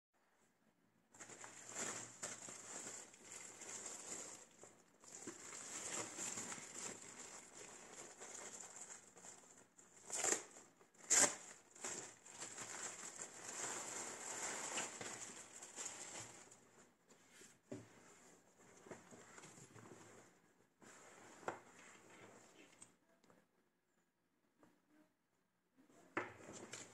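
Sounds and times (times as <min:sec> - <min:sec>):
plastic wrapping crinkling: 0:01.2 - 0:16.9.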